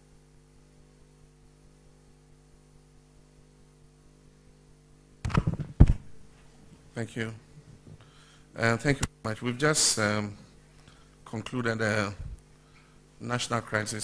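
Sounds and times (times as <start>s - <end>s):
faint electrical mains hum: 0.0s - 14.0s.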